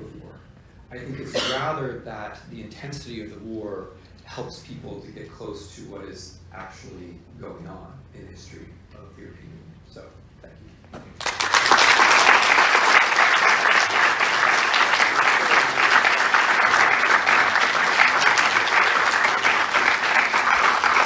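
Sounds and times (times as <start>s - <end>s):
audience applauding: 11.2s - 21.0s.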